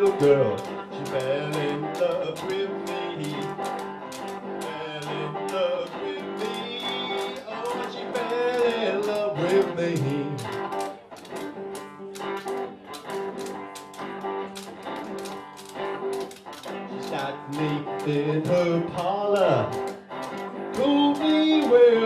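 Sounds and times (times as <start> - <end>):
man singing: 0.0 - 3.9, 4.5 - 10.7, 16.9 - 19.9, 20.6 - 22.0
electric guitar: 0.0 - 22.0.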